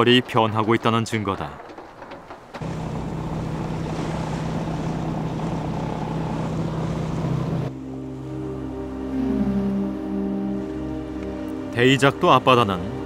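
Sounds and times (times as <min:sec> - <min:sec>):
boat engine running: 0:00.0 - 0:13.0
water and wind rushing: 0:02.6 - 0:13.0.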